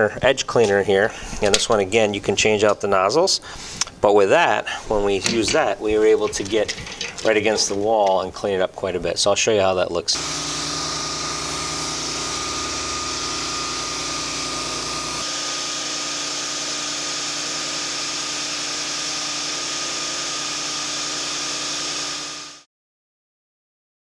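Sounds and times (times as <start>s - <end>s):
engine drone: 10.2s - 18.0s
pressure washer spraying concrete: 10.2s - 22.6s.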